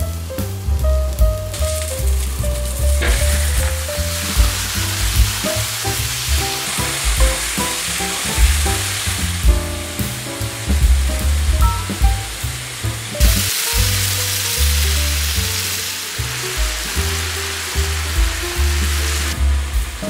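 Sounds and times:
meat sizzling in hot oil: 0.0 - 20.0
background music with steady beat: 2.5 - 14.0, 18.1 - 20.0.

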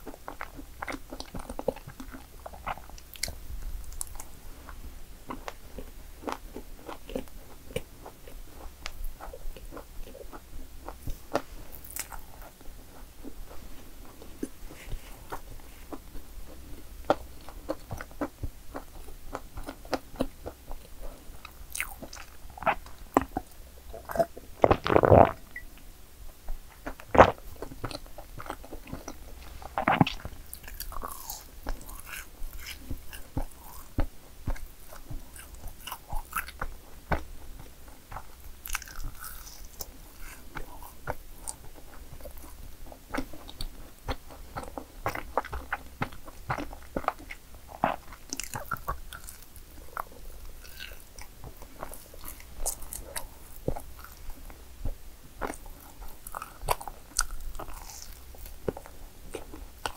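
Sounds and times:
person biting and chewing: 9.2 - 12.6, 14.4 - 25.6, 26.8 - 54.5, 55.4 - 59.9.

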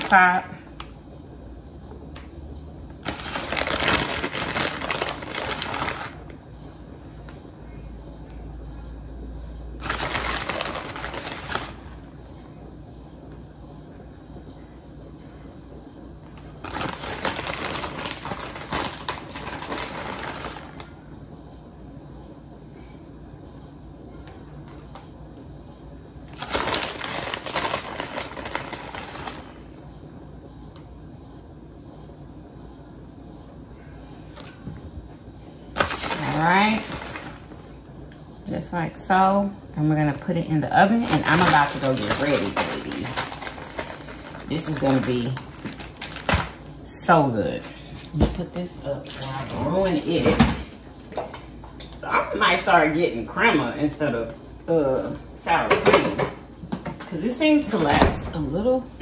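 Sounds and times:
low background hum: 0.0 - 59.0
plastic bag crinkling: 3.0 - 6.3, 9.8 - 11.9, 16.4 - 20.9, 26.3 - 29.6, 35.7 - 37.5, 40.8 - 46.7.

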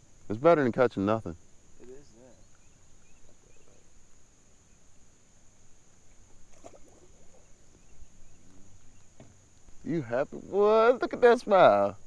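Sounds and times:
faint high-pitched whine: 0.0 - 12.0
fish splashing into water: 6.4 - 7.4.

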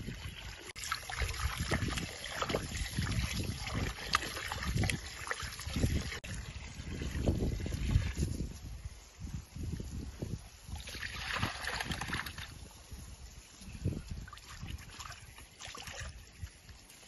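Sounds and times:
hose water splashing into bowl: 0.0 - 8.5, 10.7 - 12.6.

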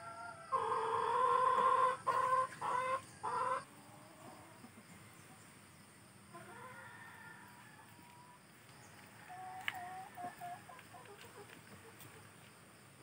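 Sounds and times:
rooster crowing: 6.5 - 8.2.

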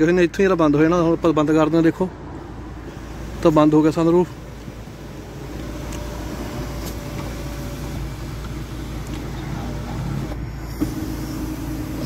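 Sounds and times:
car engine idling: 0.0 - 12.0
climate control blower: 5.4 - 12.0.

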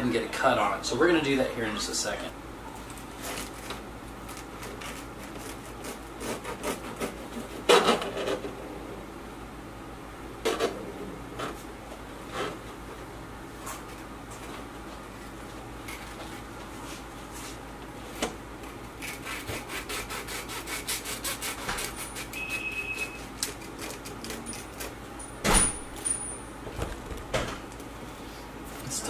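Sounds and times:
knife sawing through bread crust: 3.2 - 8.4, 19.0 - 25.0.

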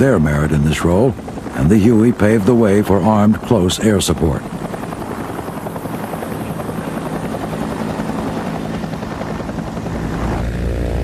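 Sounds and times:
helicopter rotors beating: 0.0 - 11.0.

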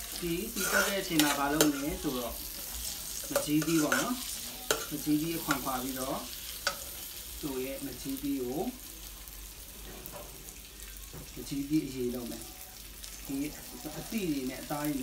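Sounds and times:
ladle scraping metal wok: 0.0 - 5.9
shallots sizzling in hot oil: 0.0 - 15.0.

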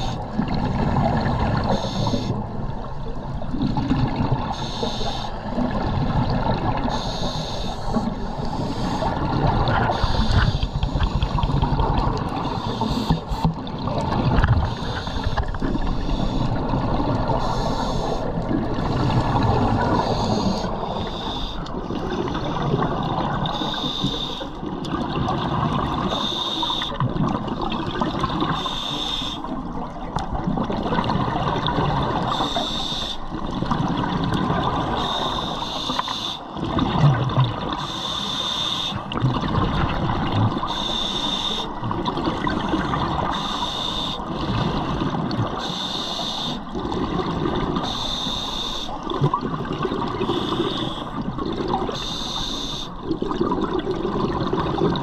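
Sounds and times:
regulator breathing hiss: 1.7 - 2.4, 4.5 - 5.4, 6.9 - 9.1, 9.9 - 10.9, 17.3 - 18.3, 19.9 - 21.7, 23.5 - 24.5, 28.6 - 29.5, 32.3 - 33.2, 37.8 - 39.0, 40.7 - 41.8, 43.3 - 44.3, 45.6 - 46.7, 47.8 - 49.0, 50.2 - 51.2, 51.9 - 53.0
gurgling exhaust bubbles: 36.6 - 37.8, 46.7 - 47.8, 49.0 - 52.0, 53.0 - 55.0.

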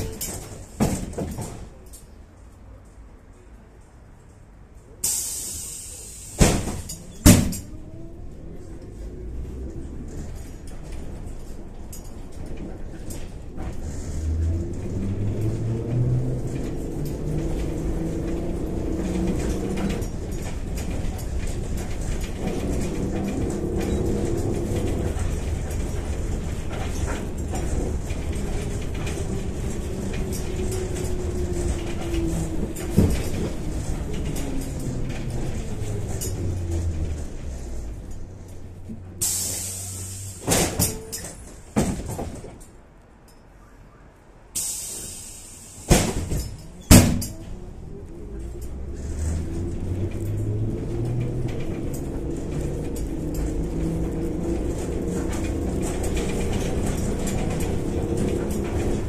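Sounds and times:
clunks: 0.0 - 3.0, 5.0 - 43.9, 44.6 - 59.0
air hiss bursts: 5.0 - 6.6, 39.2 - 40.5, 44.6 - 46.1.

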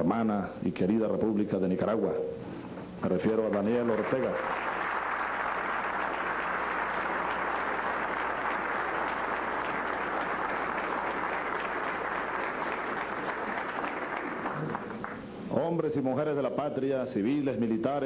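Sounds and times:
audience applauding: 3.3 - 15.3.

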